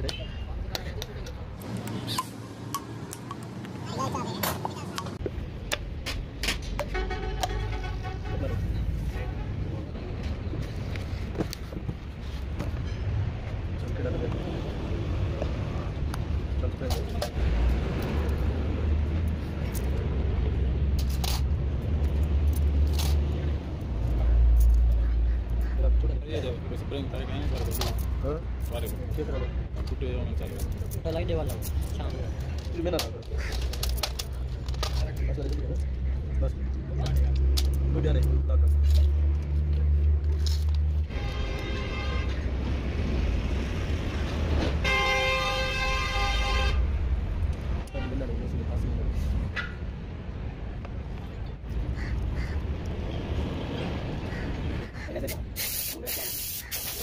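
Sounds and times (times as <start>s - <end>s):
low rumble of traffic: 0.0s - 57.0s
vehicle horn held note: 44.8s - 46.8s.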